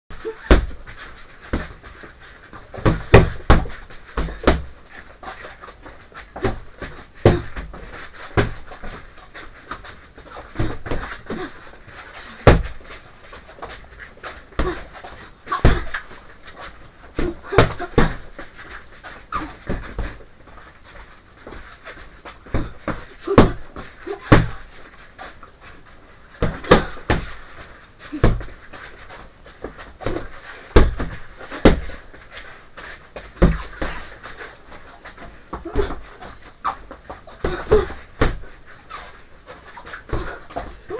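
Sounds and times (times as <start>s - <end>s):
gloves punching padded bag: 30.1s - 32.0s
person breathing hard: 37.3s - 38.1s, 40.1s - 40.9s.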